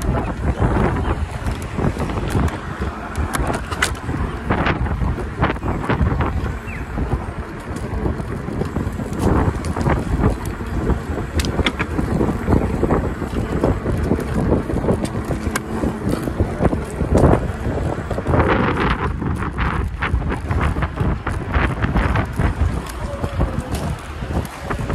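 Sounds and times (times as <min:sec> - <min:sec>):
scooter rattles and knocks: 0:00.0 - 0:24.9
wind buffeting microphone: 0:00.0 - 0:24.9.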